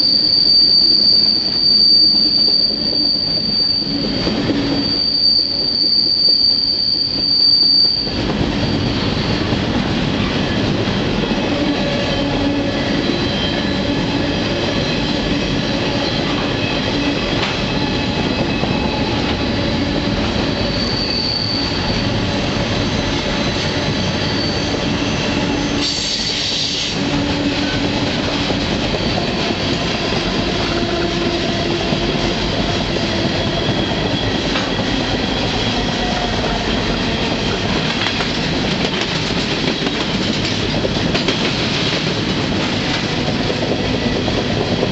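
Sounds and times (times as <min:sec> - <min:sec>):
wheels squealing: 0:00.0 - 0:40.8
train wheels rumbling on rails: 0:00.0 - 0:44.9.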